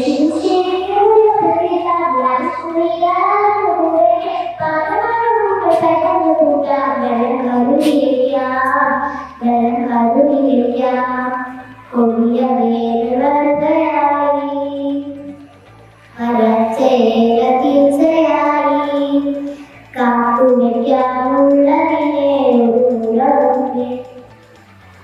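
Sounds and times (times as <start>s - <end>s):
girl singing into microphone: 0.0s - 15.4s, 16.2s - 24.2s
singer breathing: 9.0s - 9.4s, 19.4s - 19.9s.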